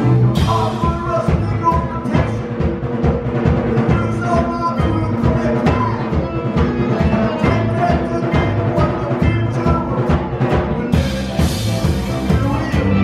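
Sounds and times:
drum hits: 0.0s - 13.0s
live band music: 0.0s - 13.0s.

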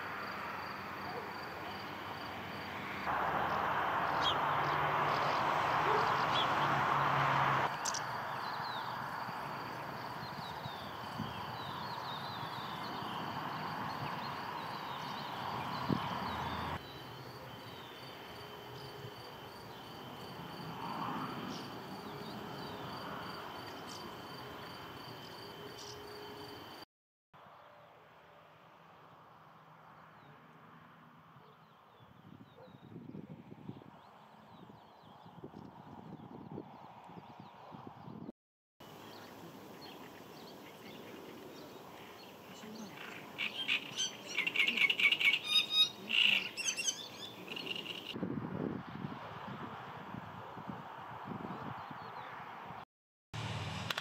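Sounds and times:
crickets trilling: 0.0s - 26.8s
songbird chattering song: 7.7s - 9.0s, 10.0s - 18.2s, 38.9s - 48.2s
soft outdoor hiss: 38.8s - 48.1s.

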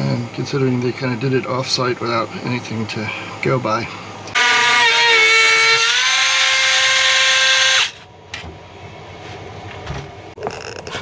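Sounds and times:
rotary tool cutting whine: 4.2s - 8.1s.

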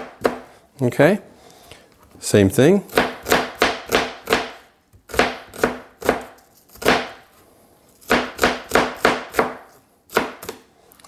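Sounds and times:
knife chopping onion on board: 0.0s - 0.5s, 2.9s - 7.2s, 8.0s - 10.6s.

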